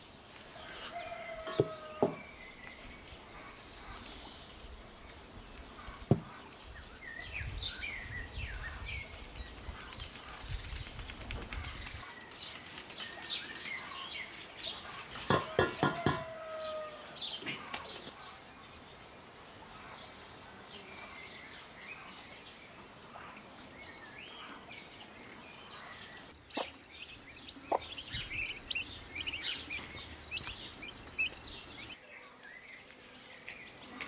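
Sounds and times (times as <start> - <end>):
birds chirping: 0.0 - 34.0
sharp knock on bowl: 15.3 - 16.3.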